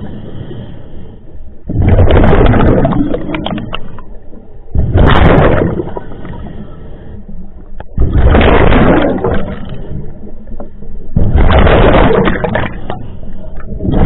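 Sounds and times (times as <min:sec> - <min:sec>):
exhaled bubbles gushing: 0:01.7 - 0:06.5, 0:07.8 - 0:14.0.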